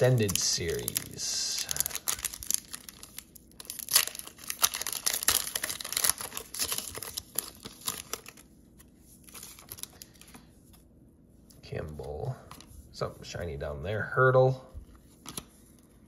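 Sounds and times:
wrapper tearing and crinkling: 0:00.0 - 0:08.5, 0:09.2 - 0:10.3.

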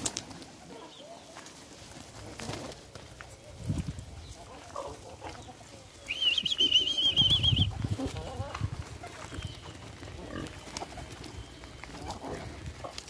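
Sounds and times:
pigeon wings flapping: 0:00.0 - 0:00.7, 0:01.4 - 0:03.1, 0:08.8 - 0:13.0
high warbling whistle: 0:06.1 - 0:07.7.

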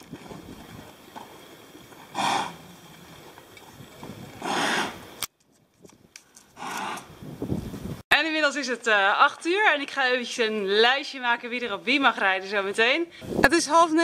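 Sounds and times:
horse snorting: 0:01.2 - 0:03.4, 0:04.2 - 0:05.2, 0:06.5 - 0:07.2.

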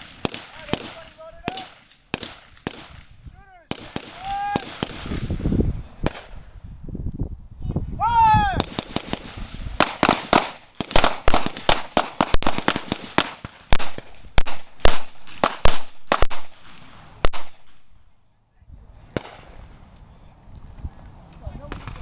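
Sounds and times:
handguns firing: 0:08.6 - 0:17.9.

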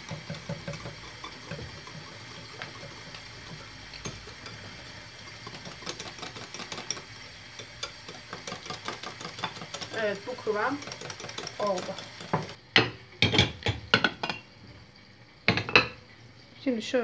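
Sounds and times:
whisk clicking against glass bowl: 0:00.0 - 0:04.6, 0:05.4 - 0:12.6.

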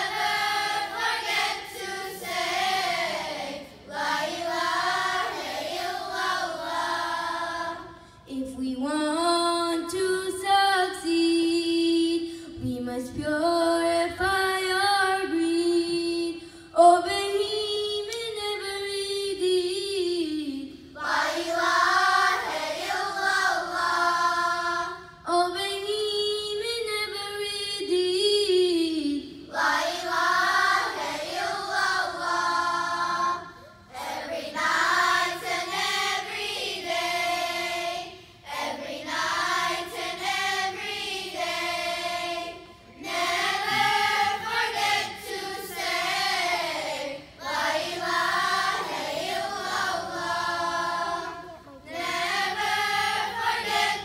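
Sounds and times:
girls choir singing: 0:00.0 - 0:08.0, 0:21.0 - 0:25.2, 0:29.5 - 0:54.0.

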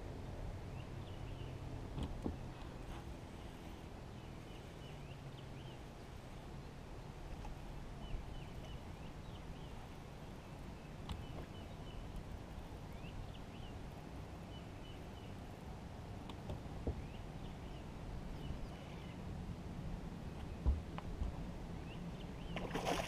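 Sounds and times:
steady low rumble: 0:00.0 - 0:22.6
small birds chirping: 0:08.0 - 0:15.6, 0:21.8 - 0:23.0.

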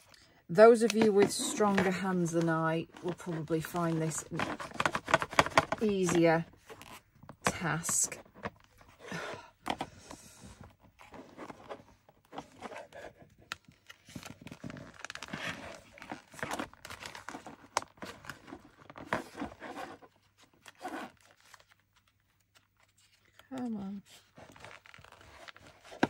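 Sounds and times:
paper pages rustling and crinkling: 0:00.7 - 0:09.9, 0:10.6 - 0:26.0
ribbon scraping through paper: 0:20.7 - 0:21.7.

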